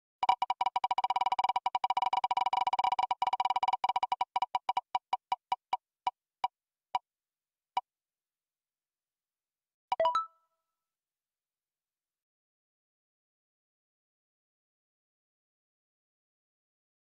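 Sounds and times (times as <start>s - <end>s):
electronic prize wheel ticks: 0.2s - 5.8s.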